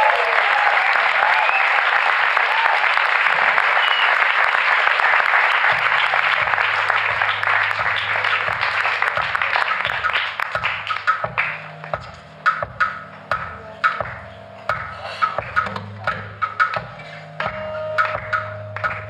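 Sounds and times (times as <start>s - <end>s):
audience applauding: 0.0s - 11.8s
low notes: 5.5s - 19.0s.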